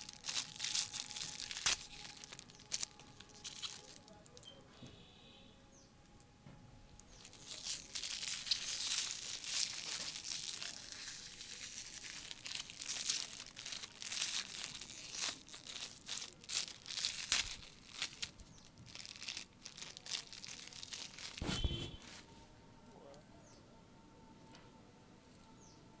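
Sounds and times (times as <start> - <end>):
aluminium foil crinkling: 0.0 - 4.6, 6.9 - 22.3.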